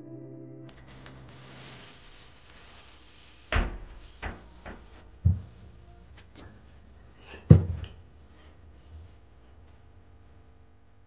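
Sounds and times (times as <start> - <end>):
objects knocking on countertop: 7.5 - 7.9.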